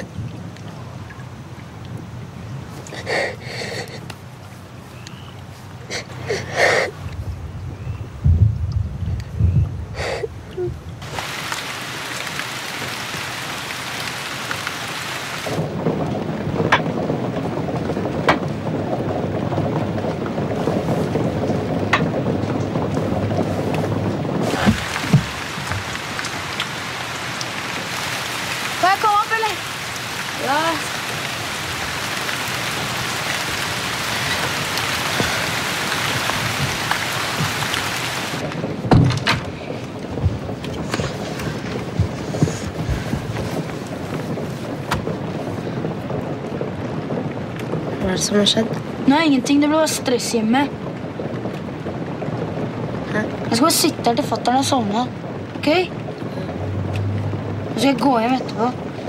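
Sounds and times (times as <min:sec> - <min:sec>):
heavy rain: 0:00.0 - 0:59.0
low water rush: 0:00.0 - 0:59.0
heavily falling water hissing: 0:02.8 - 0:07.1, 0:09.9 - 0:16.6, 0:17.2 - 0:46.2, 0:51.9 - 0:59.0
loud low thump: 0:08.2 - 0:09.8, 0:38.8 - 0:39.6.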